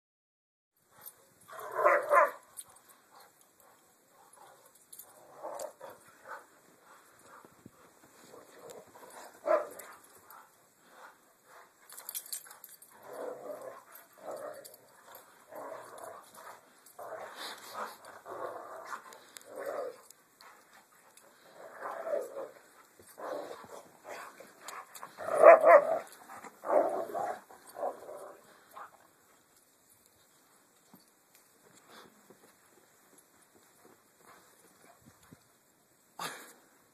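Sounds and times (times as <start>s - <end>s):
dogs barking and growling: 1.0s - 29.0s.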